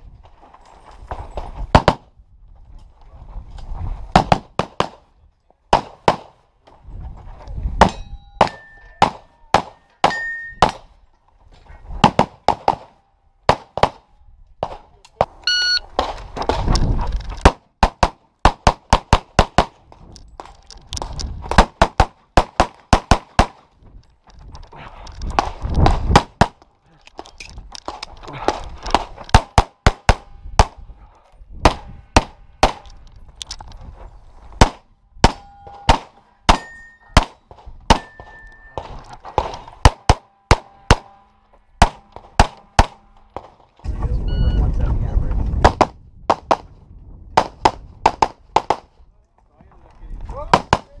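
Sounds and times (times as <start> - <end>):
steel targets ringing: 10.1 - 10.6, 35.3 - 37.2
short beep: 15.4 - 15.8, 44.2 - 44.7.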